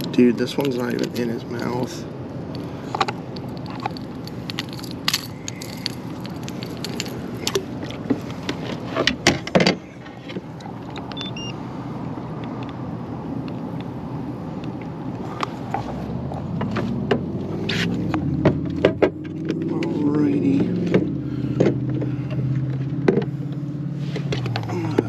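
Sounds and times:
fishing tackle clicking and jangling: 0:02.5 - 0:08.4.

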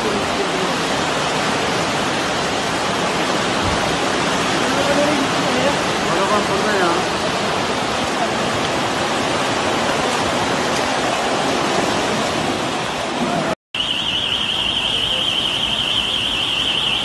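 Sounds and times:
floodwater rushing: 0:00.0 - 0:17.0
warbling electronic alarm: 0:13.8 - 0:17.0.

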